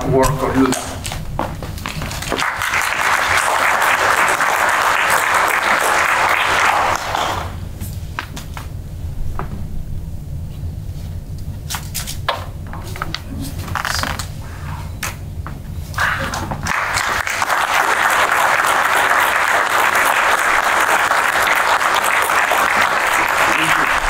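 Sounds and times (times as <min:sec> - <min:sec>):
low hum: 0:00.0 - 0:24.0
audience applause: 0:01.9 - 0:07.6, 0:16.0 - 0:24.0.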